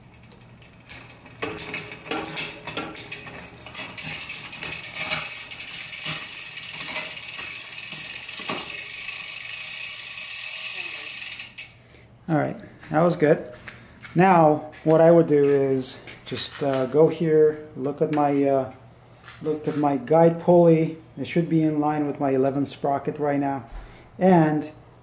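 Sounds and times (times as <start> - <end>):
bicycle drivetrain clicks: 0.0 - 11.8
bike chain ratcheting tick: 0.1 - 11.8.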